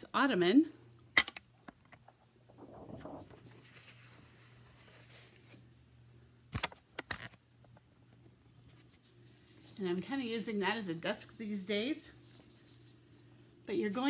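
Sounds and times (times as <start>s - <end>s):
paper crackling: 2.5s - 5.6s
paper rustling: 2.5s - 5.7s.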